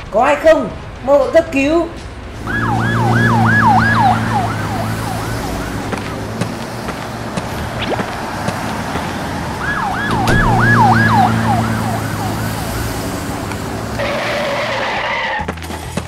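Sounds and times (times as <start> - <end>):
ambulance siren yelping: 2.4 - 6.2, 9.5 - 15.3.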